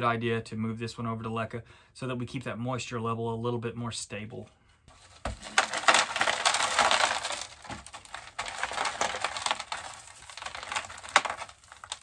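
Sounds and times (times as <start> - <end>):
potting mix crunching and rattling: 4.9 - 12.0.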